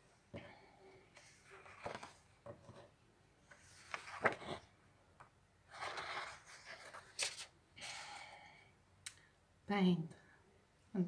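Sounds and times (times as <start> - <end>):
paper rustling: 1.2 - 2.9, 3.5 - 4.7, 5.7 - 7.5.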